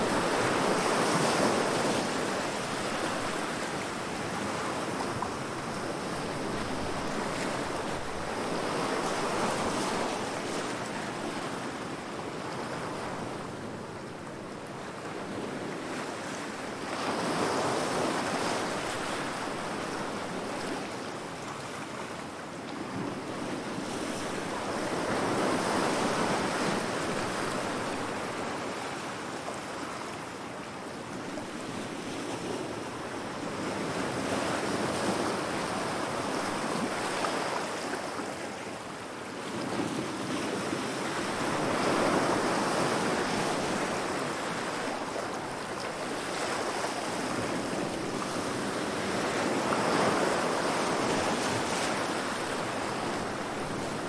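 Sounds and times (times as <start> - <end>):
ocean waves breaking: 40.2 - 54.0.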